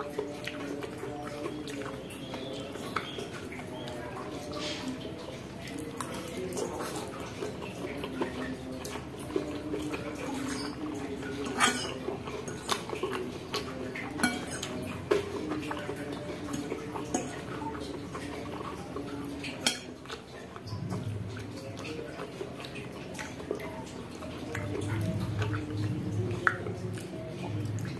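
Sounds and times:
fork clinking on ceramic bowl: 10.3s - 17.6s, 19.5s - 20.2s.

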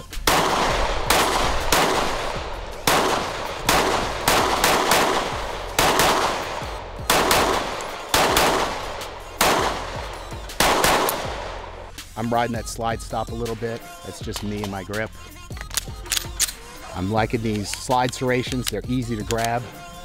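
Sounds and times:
pistol shots: 0.0s - 12.0s.

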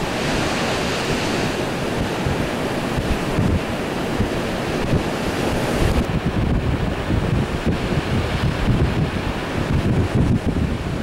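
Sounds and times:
surf breaking: 0.0s - 11.0s
wind buffeting microphone: 0.0s - 11.0s.

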